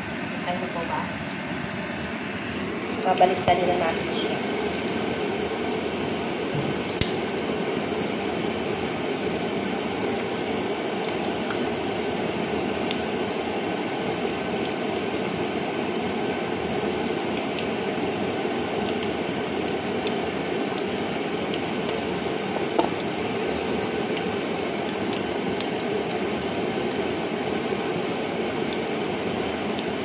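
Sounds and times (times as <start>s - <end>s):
meat sizzling in a frying pan: 7.1s - 30.0s.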